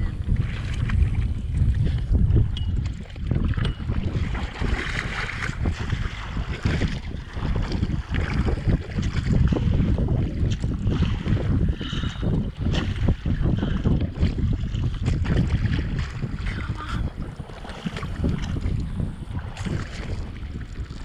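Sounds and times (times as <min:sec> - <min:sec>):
water splashing against boat hull: 0:00.0 - 0:21.0
wind buffeting microphone: 0:00.0 - 0:21.0.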